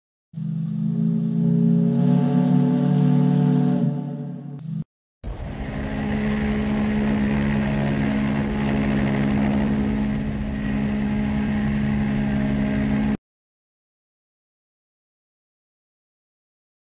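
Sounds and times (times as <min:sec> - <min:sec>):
ship's horn blast: 0:00.4 - 0:13.2
low rumble: 0:04.0 - 0:13.2.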